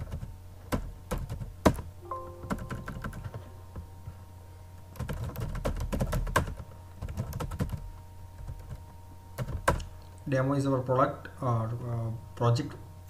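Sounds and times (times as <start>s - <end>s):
computer keyboard typing: 0.0s - 1.5s, 2.5s - 3.4s, 5.0s - 7.8s.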